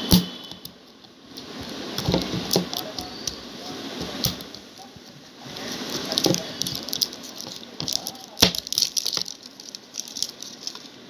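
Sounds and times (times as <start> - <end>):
foil seal crinkling: 5.6 - 11.0.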